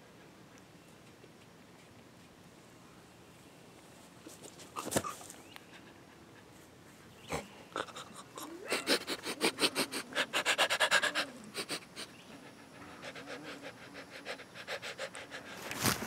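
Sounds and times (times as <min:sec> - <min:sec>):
man panting like a dog: 0:07.4 - 0:15.8.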